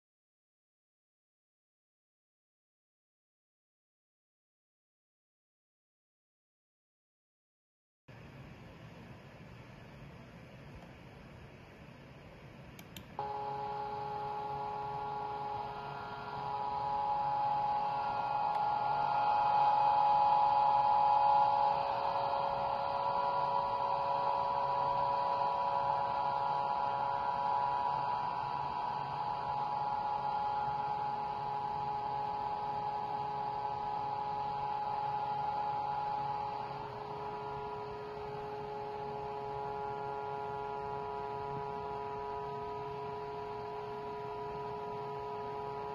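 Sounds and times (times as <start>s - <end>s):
vibrating motor hum: 13.2s - 45.9s.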